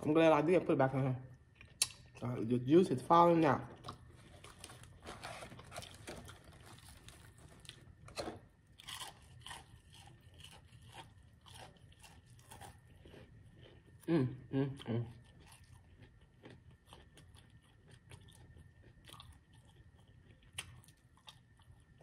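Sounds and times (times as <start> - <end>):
crunching and chewing fried chicken: 1.3 - 2.5, 3.6 - 22.0.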